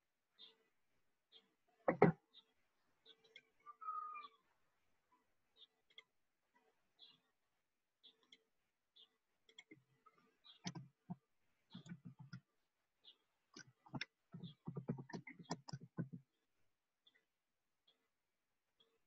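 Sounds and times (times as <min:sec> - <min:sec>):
faint high chirps: 0:03.0 - 0:04.5
faint clicking and tapping: 0:09.4 - 0:12.5, 0:13.5 - 0:16.4.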